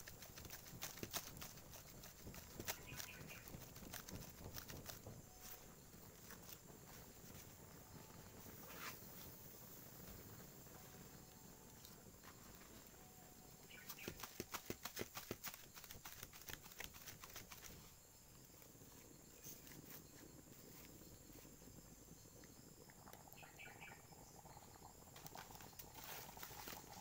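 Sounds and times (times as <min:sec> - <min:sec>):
dry twigs crackling: 0:00.0 - 0:07.5, 0:13.6 - 0:17.9, 0:25.2 - 0:27.0.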